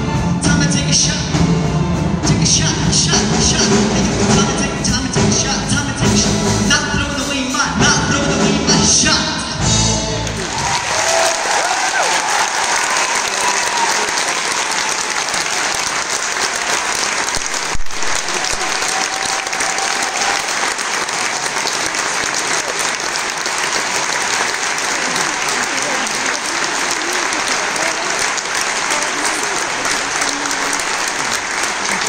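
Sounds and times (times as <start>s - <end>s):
audience applauding: 10.0s - 32.0s.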